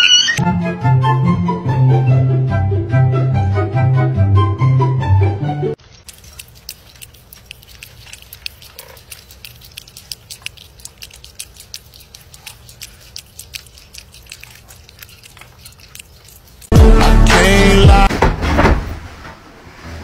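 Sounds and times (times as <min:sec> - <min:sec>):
cat lapping water: 0:05.9 - 0:16.8.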